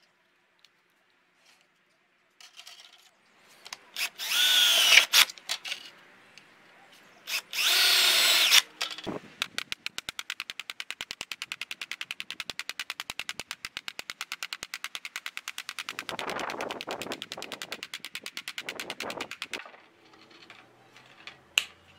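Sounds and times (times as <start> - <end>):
power drill boring through metal: 4.0 - 5.3, 7.3 - 8.6
rapid even tapping: 9.4 - 19.6.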